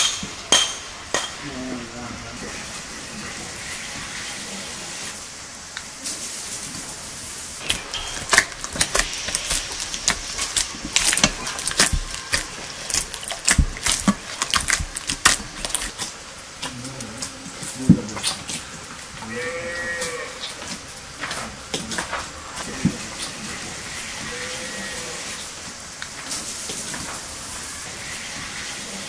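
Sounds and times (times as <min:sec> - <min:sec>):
steady background noise: 0:00.0 - 0:29.0
dough slapping against bowl: 0:07.6 - 0:16.7.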